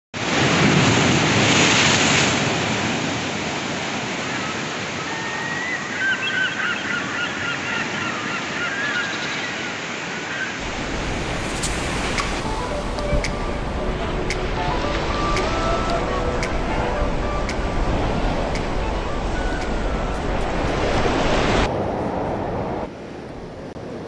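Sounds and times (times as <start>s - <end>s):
surf breaking over rocks: 0.2s - 4.3s, 10.6s - 22.5s.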